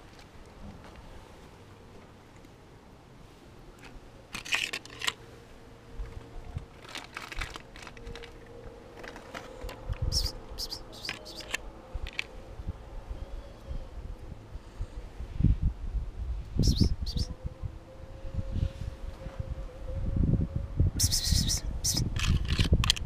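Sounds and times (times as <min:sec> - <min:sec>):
aluminium foil tray crinkling: 0:06.7 - 0:09.8.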